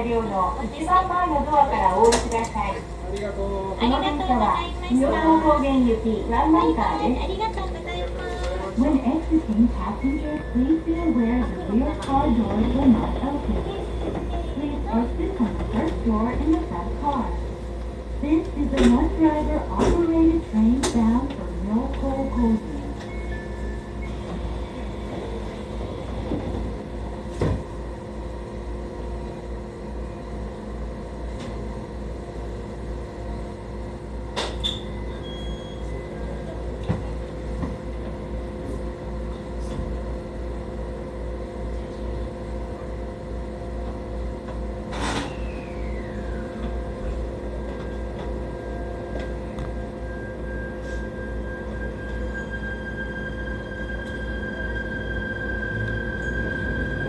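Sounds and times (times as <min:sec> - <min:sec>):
train humming: 0:00.0 - 0:57.0
steady whine: 0:40.3 - 0:57.0.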